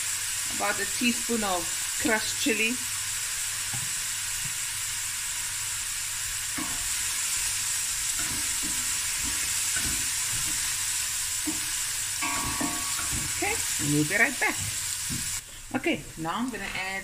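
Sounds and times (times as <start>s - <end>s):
onion sizzling in oil: 0.0s - 17.0s
wooden spoon scraping a pot: 8.1s - 15.4s.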